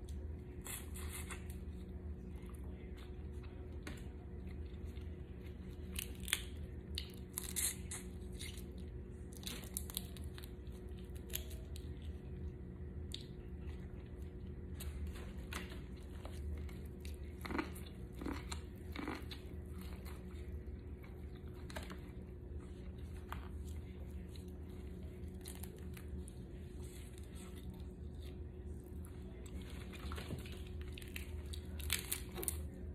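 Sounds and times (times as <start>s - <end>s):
close-up chewing: 4.4s - 32.8s.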